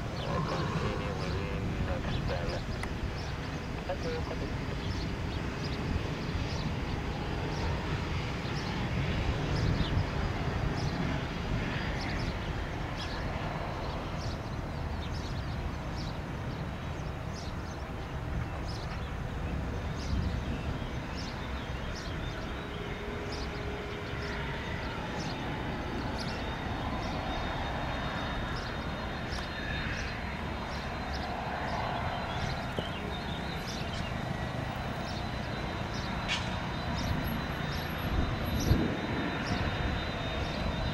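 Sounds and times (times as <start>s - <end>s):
jet engines low rumble and whine: 0.0s - 40.9s.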